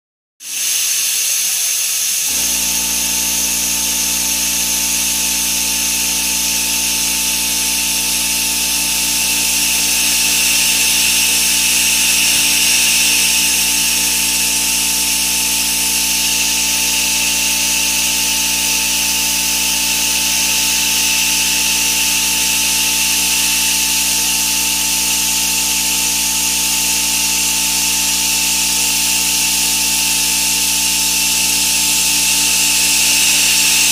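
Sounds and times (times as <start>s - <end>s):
mill cutting steel hiss: 0.4s - 33.9s
machine hum and whine: 2.2s - 33.9s.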